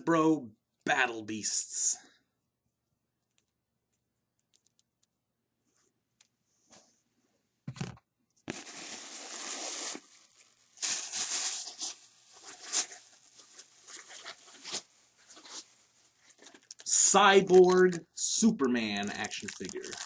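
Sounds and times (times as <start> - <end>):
plastic bag rustling: 8.5 - 18.0, 18.9 - 20.0.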